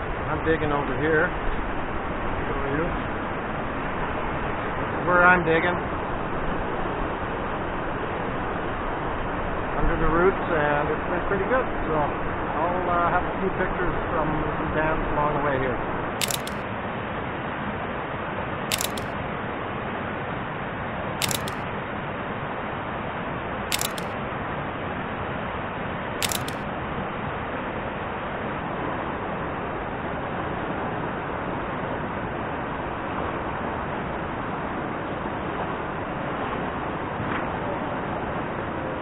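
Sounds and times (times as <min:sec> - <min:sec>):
camera shutter clicks: 0:16.2 - 0:16.6, 0:18.7 - 0:19.2, 0:21.2 - 0:21.6, 0:23.7 - 0:24.2, 0:26.2 - 0:26.6.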